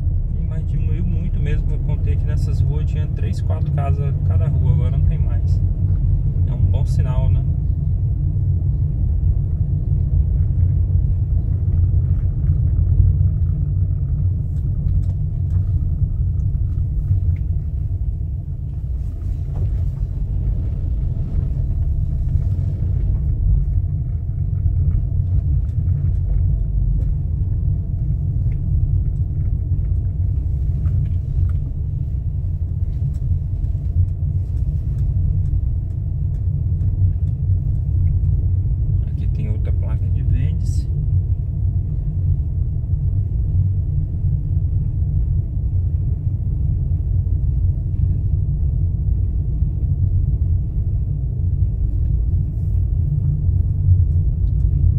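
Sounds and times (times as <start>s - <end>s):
car engine and road noise: 0.0s - 54.9s.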